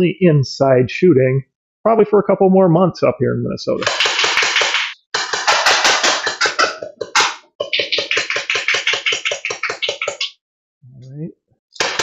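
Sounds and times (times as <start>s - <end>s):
toy blaster firing full auto: 3.8s - 4.9s.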